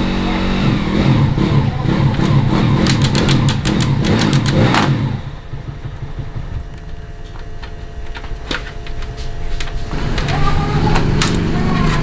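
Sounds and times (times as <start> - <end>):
motorcycle engine running: 0.0 - 12.0
quick clicks: 2.2 - 4.9.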